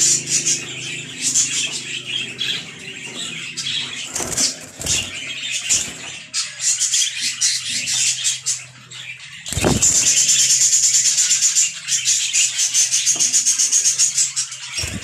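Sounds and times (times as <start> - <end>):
budgerigars chirping: 0.0 - 15.0
wings flapping: 4.1 - 5.9
thumps: 9.5 - 10.4.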